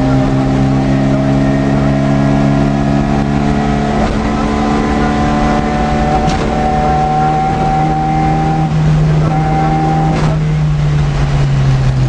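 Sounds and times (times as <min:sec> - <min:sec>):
car engine at high revs: 0:00.0 - 0:12.0
sharp knock: 0:06.2 - 0:06.6.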